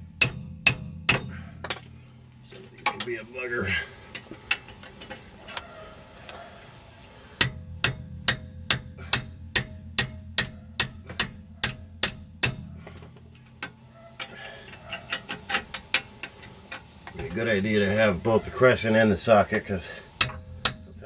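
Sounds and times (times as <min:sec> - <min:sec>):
wrench clicking on bolt: 0:13.5 - 0:16.8.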